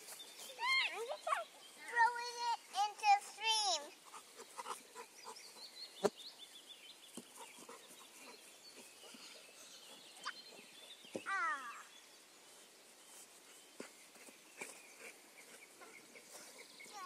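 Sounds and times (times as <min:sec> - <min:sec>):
birds chirping faintly: 0:00.0 - 0:17.0
child shouting: 0:11.3 - 0:11.9.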